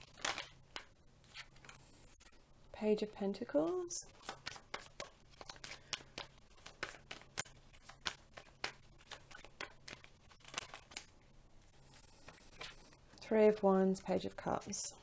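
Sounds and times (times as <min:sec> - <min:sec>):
cards being shuffled: 0:00.0 - 0:02.4, 0:03.6 - 0:11.1, 0:12.0 - 0:13.0.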